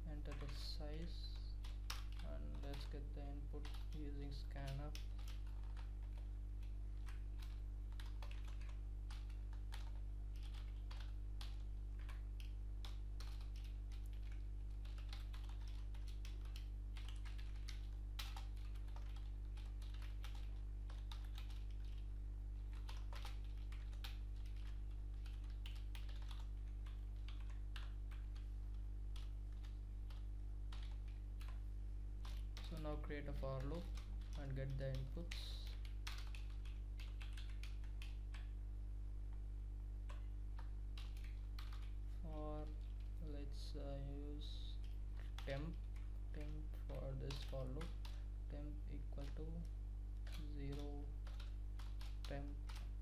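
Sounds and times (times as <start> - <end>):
steady low hum: 0.0 - 53.0
keyboard typing clicks: 1.6 - 3.0, 3.6 - 22.0, 22.7 - 28.5, 29.1 - 31.6, 32.2 - 33.0, 33.6 - 38.5, 40.1 - 42.0, 44.8 - 48.2, 50.2 - 52.9.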